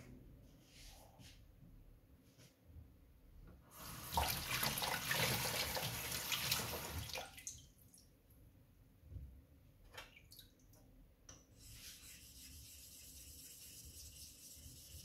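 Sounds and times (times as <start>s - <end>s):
water running from a tap: 3.8s - 7.6s.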